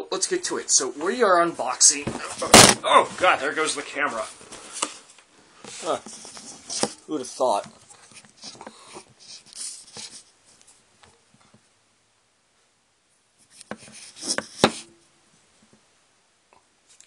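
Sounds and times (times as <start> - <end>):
knocks and scrapes: 13.5 - 15.0.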